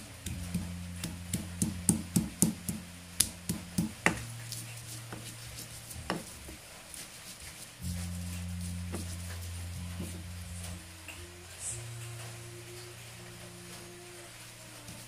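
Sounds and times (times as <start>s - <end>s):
stone pestle striking mortar: 0.2s - 4.3s.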